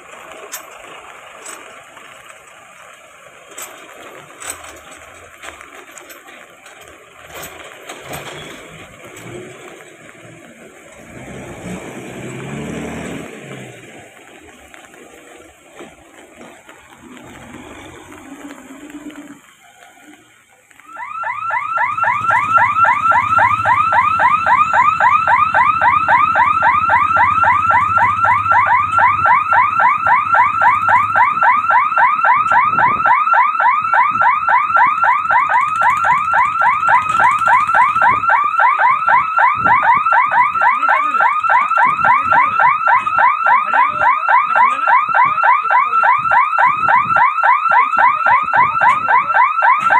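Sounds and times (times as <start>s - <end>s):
electronic warning hooter warbling: 20.8s - 49.9s.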